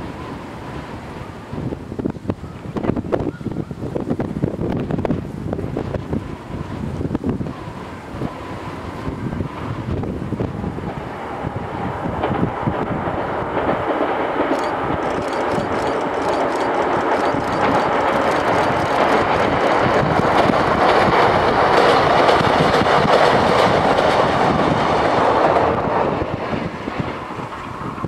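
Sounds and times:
electric train crossing steel bridge: 0.0 - 28.0
wheel clatter over rails: 12.2 - 26.5.

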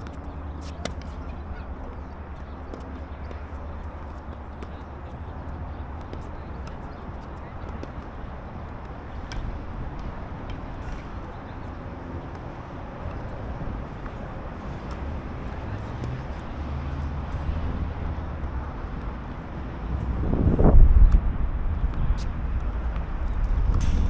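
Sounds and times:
low rumble: 20.0 - 24.0.

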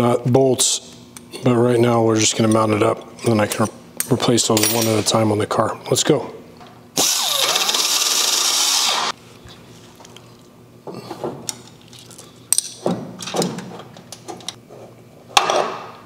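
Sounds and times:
handheld air tool running: 7.0 - 9.2.

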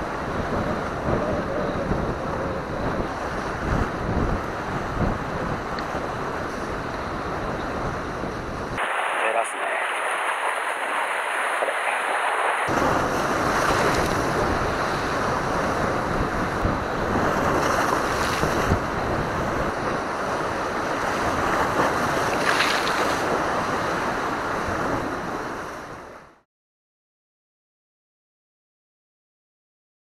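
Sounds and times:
wind buffeting microphone: 0.0 - 26.2
waves washing against rocks: 8.8 - 25.2.

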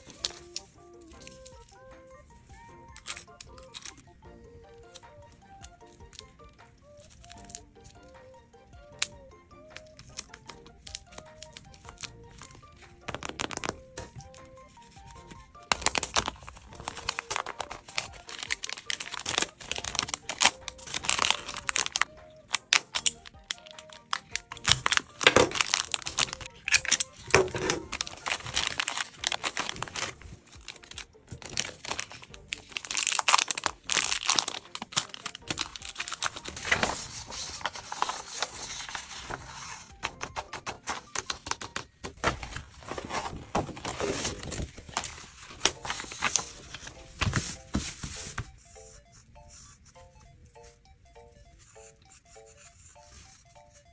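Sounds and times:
cellophane bag crinkling: 14.9 - 47.7.

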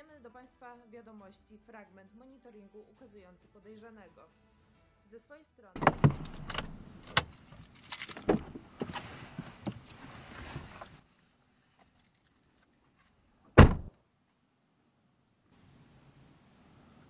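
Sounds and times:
car door slamming shut: 5.8 - 7.3, 8.2 - 8.9, 13.6 - 13.9
clicks and rustling in a car: 5.8 - 11.0, 11.7 - 13.9.

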